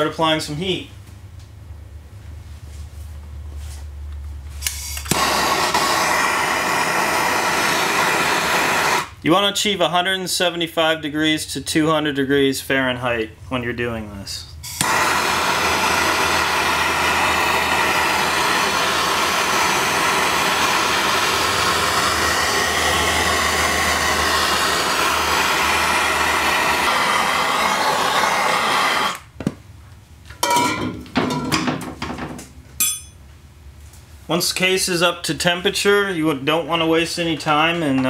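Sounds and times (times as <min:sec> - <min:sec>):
gas torch hissing: 0:04.6 - 0:09.2, 0:14.6 - 0:29.4
knocks and clinks: 0:30.4 - 0:31.8, 0:32.8 - 0:33.2.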